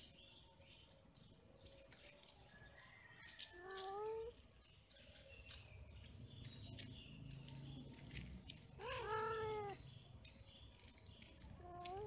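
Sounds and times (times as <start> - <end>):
cat yowling: 8.8 - 9.8.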